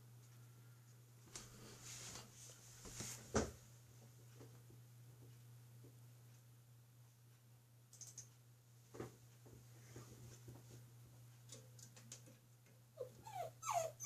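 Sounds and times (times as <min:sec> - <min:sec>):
low steady hum: 0:00.0 - 0:14.0
faint clicks: 0:07.9 - 0:08.4.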